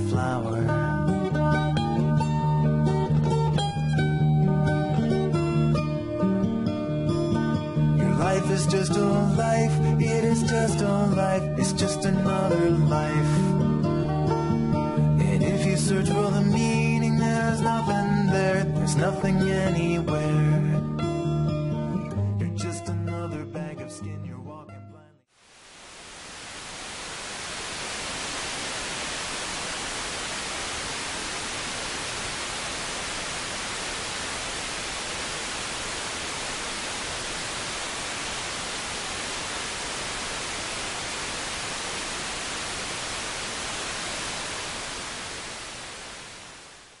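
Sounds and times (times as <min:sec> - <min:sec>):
radio static hiss: 0:00.0 - 0:00.6, 0:25.3 - 0:47.0.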